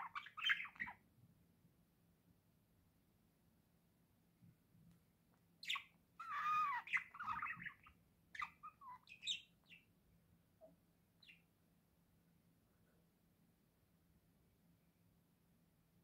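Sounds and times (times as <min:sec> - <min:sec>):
budgerigars chirping: 0:00.0 - 0:01.0, 0:05.6 - 0:09.9.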